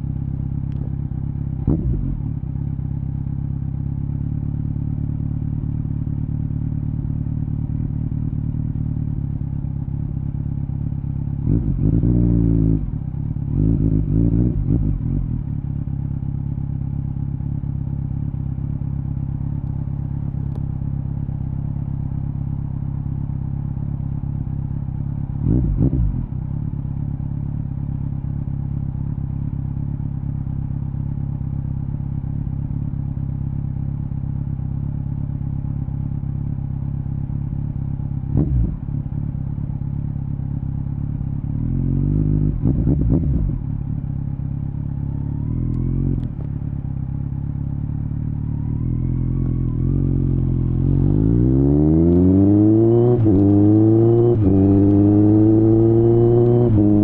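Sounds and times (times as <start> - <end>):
motorcycle engine drone: 0.0 - 57.0
engine throttle blips: 48.3 - 57.0.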